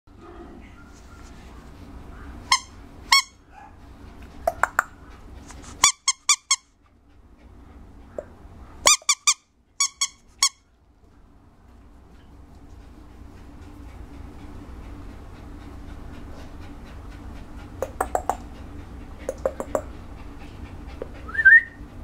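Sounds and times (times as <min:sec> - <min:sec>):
squeaky toy squeaking: 0:02.5 - 0:03.3, 0:05.8 - 0:06.6, 0:08.9 - 0:10.6.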